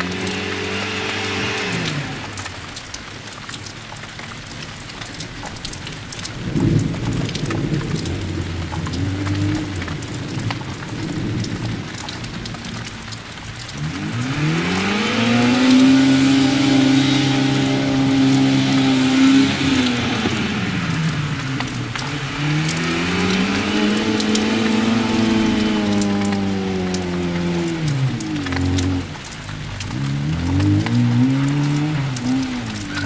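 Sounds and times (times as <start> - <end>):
engine revving whine: 0.0 - 3.0, 13.6 - 33.0
rally car engine: 0.0 - 5.4, 6.0 - 33.0
exhaust crackles: 0.0 - 33.0.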